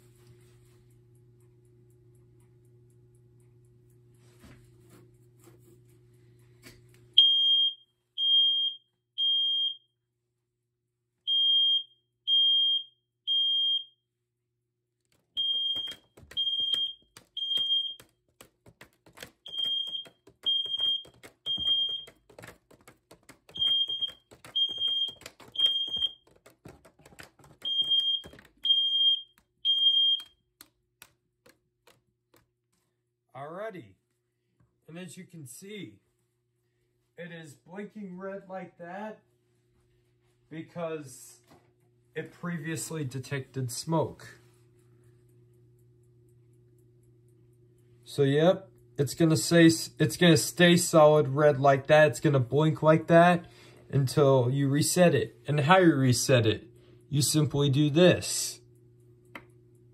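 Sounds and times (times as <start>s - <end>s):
smoke alarm beeping: 7.2s - 10.0s, 11.2s - 14.0s, 15.3s - 18.2s, 19.4s - 22.2s, 23.5s - 26.3s, 27.6s - 30.5s.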